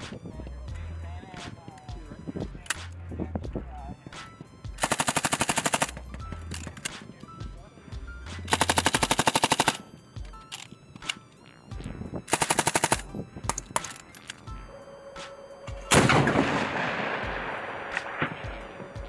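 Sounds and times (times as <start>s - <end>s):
machine gun bursts: 4.8s - 5.9s, 8.5s - 9.8s, 12.3s - 13.0s.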